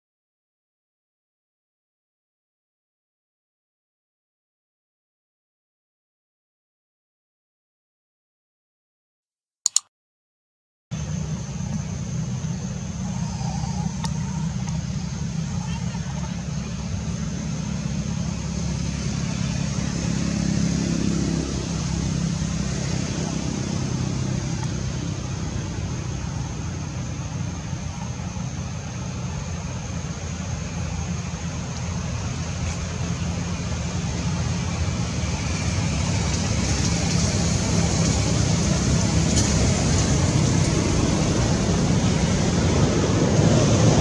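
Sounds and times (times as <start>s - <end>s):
low engine rumble: 10.9s - 44.0s.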